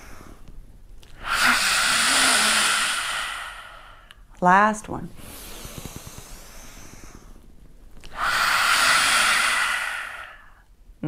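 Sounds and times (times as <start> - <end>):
woman forceful breathy exhale: 1.2 - 4.1, 8.1 - 10.6
woman inhaling through nose: 1.2 - 4.2, 5.2 - 7.4, 8.0 - 10.6.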